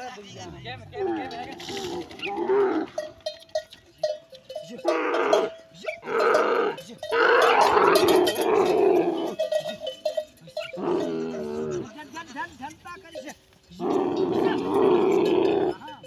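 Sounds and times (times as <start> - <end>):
camels grunting: 0.3 - 3.2, 4.8 - 12.3, 13.7 - 16.0
small bell ringing: 1.7 - 16.0.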